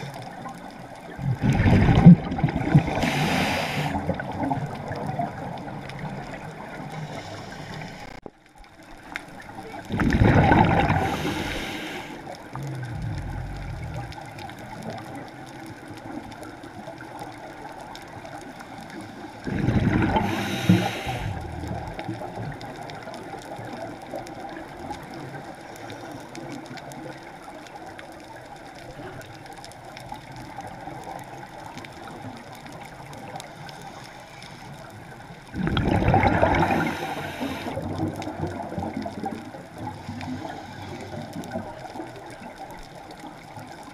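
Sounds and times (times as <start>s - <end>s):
faint steady hiss: 0.0s - 43.9s
diver exhaling bubbles underwater: 1.2s - 5.4s, 9.8s - 15.0s, 19.4s - 22.3s, 35.5s - 39.4s.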